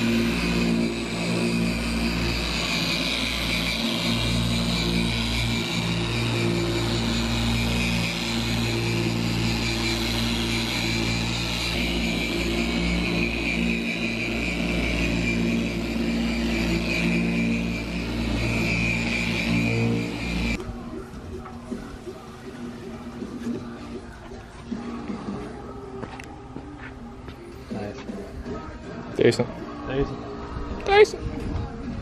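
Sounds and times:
motor humming: 0.0 - 20.6.

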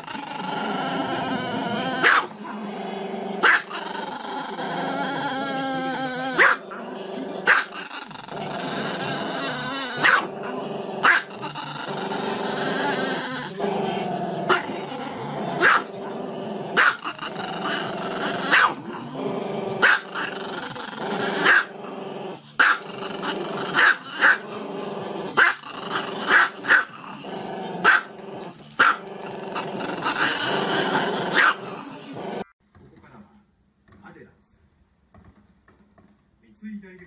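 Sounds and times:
dog growling: 0.0 - 32.6
dog barking: 2.0 - 2.3, 3.4 - 3.8, 6.4 - 6.6, 7.5 - 7.8, 10.0 - 10.3, 11.0 - 11.3, 15.6 - 15.9, 16.8 - 17.1, 18.5 - 18.8, 19.8 - 20.2, 21.4 - 21.7, 22.6 - 22.8, 23.7 - 24.4, 25.4 - 25.6, 26.3 - 26.9, 27.8 - 28.1, 28.8 - 29.0, 31.3 - 31.7.

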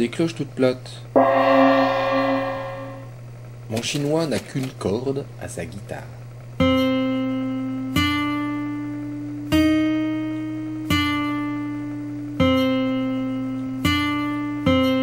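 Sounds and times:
guitar notes plucked: 1.2 - 3.2
low drone: 1.2 - 3.2.

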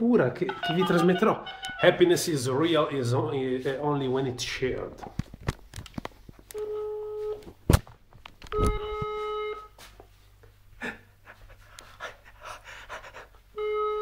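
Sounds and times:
phone ringback tone beeps: 0.5 - 2.0, 6.6 - 7.4, 8.5 - 9.7, 13.6 - 14.0.

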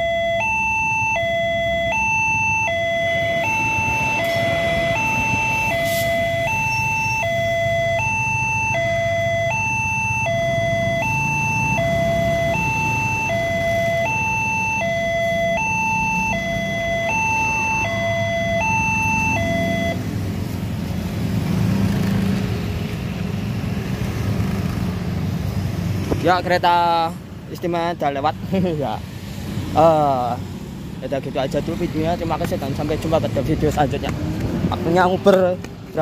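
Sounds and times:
two-tone electronic warning chime: 0.0 - 20.0
motorcycle and car engines rumbling: 0.0 - 36.0.

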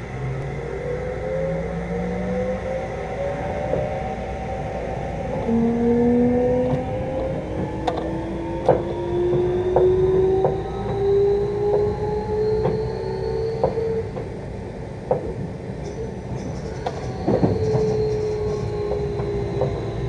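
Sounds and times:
traction motor whine: 0.0 - 14.2, 16.6 - 20.0
train wheels clacking over rail joints: 6.6 - 12.0, 15.0 - 20.0.

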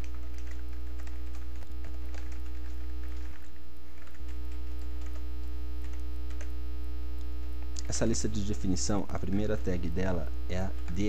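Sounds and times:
keyboard keys typing: 0.0 - 5.2, 5.8 - 6.5, 9.2 - 11.0
electrical mains hum: 0.0 - 11.0.

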